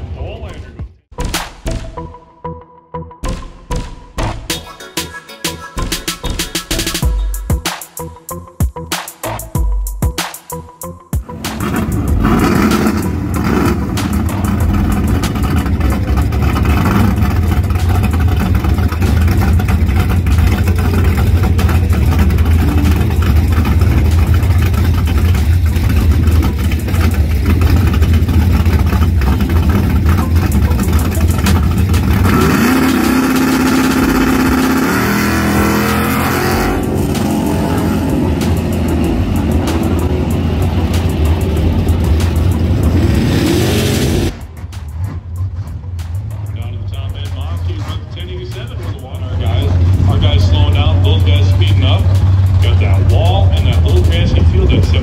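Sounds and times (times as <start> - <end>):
race car engine revving: 11.2 - 55.0.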